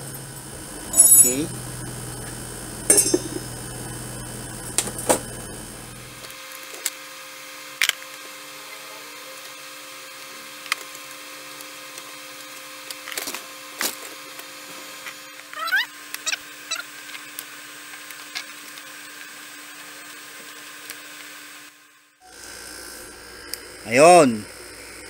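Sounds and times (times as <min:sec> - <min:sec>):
low hum: 0:00.0 - 0:06.3.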